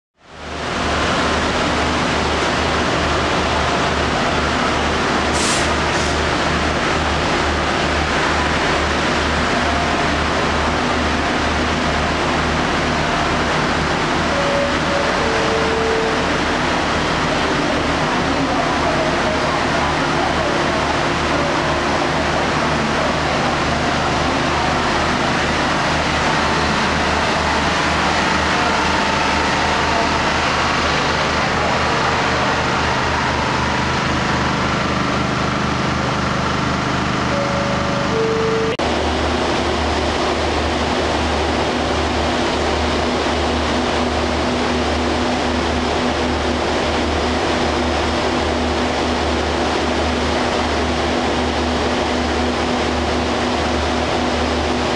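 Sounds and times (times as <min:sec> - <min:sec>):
diesel engine idling: 0:02.2 - 0:39.9
broad even hiss: 0:05.3 - 0:06.2
short high hisses: 0:05.4 - 0:06.2.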